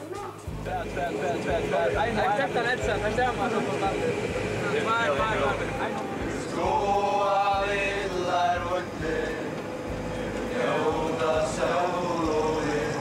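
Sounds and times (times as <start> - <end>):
coach engine rumble: 0.0 - 13.0
voices singing a chant: 3.7 - 13.0.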